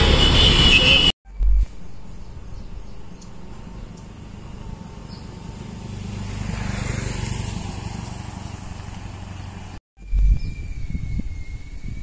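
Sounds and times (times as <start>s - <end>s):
motorcycle passing: 3.4s - 9.8s.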